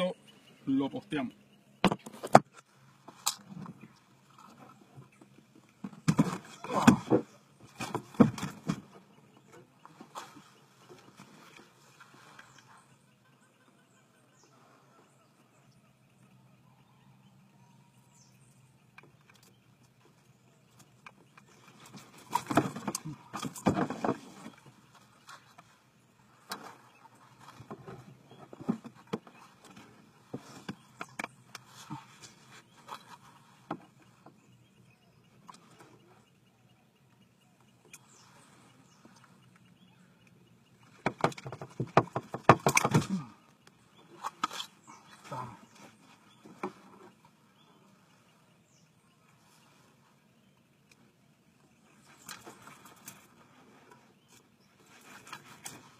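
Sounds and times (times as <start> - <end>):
rustling: 51.8 - 55.9.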